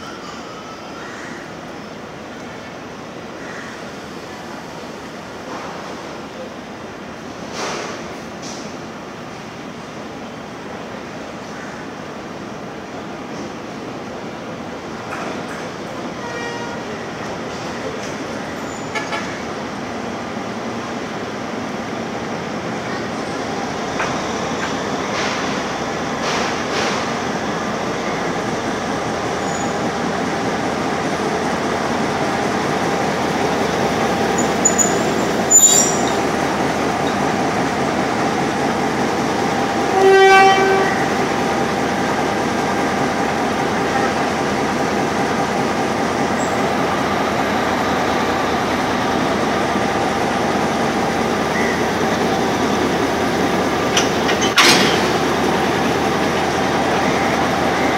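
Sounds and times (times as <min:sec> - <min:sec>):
diesel locomotive engine drone: 0:00.0 - 0:57.9
locomotive horn blast: 0:16.2 - 0:17.0, 0:39.8 - 0:41.2.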